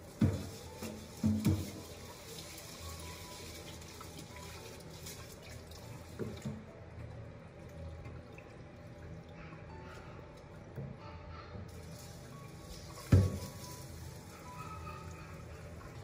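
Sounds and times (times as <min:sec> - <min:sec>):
tap water running into sink: 0:00.0 - 0:06.8, 0:11.7 - 0:14.6.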